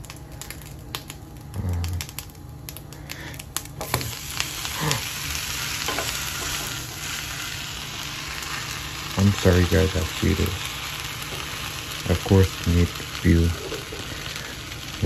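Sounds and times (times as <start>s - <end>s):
sandwich sizzling in a pan: 0.0s - 15.0s
spatula scraping a frying pan: 5.5s - 7.7s.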